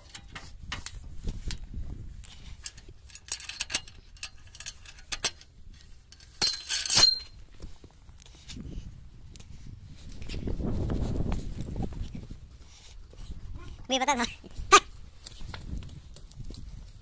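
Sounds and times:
metal chain clinking and rattling: 2.4s - 7.5s.

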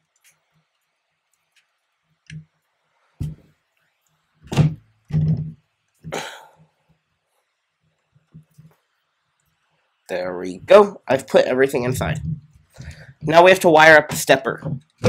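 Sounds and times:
wires rustling: 7.8s - 15.0s.

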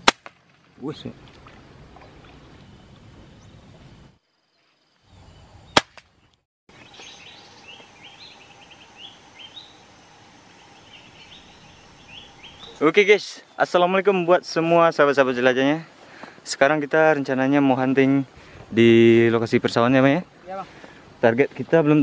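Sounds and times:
sharp crack: 0.0s - 1.1s, 5.7s - 6.2s
open-field ambience: 0.0s - 22.0s
birds chirping: 0.6s - 18.6s.

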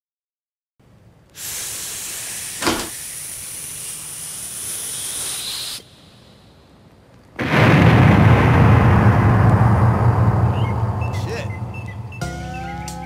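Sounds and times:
steady hiss: 1.2s - 7.7s
sharp knock: 2.6s - 3.0s.

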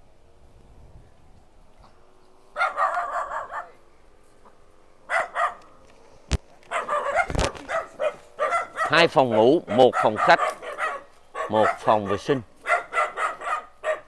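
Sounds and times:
dog barking: 2.6s - 3.8s, 5.1s - 5.7s, 6.7s - 14.0s.

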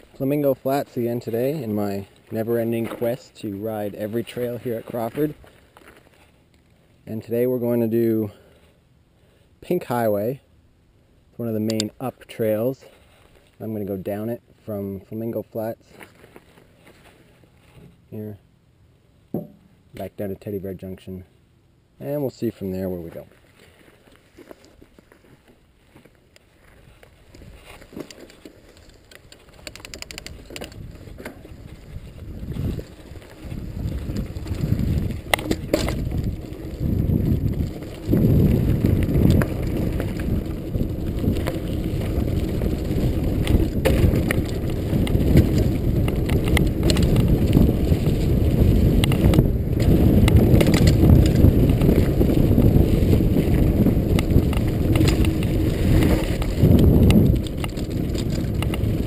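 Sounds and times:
bike tyres rumbling on dirt: 0.0s - 10.4s, 22.2s - 59.0s
sharp knocks over bumps: 19.3s - 19.8s.

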